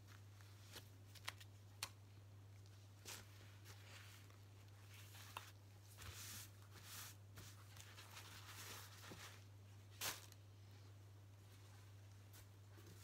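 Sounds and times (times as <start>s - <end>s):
low steady hum: 0.0s - 13.0s
paper towel rustling: 3.0s - 10.4s.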